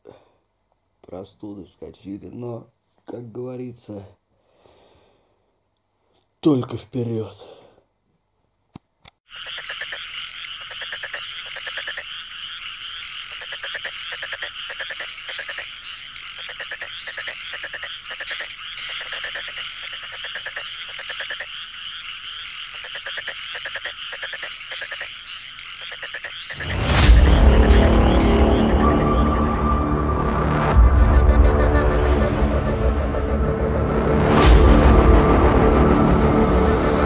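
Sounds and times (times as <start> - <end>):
frogs croaking and trilling: 9.2 - 34.4
short high rising frog calls: 9.3 - 29.8.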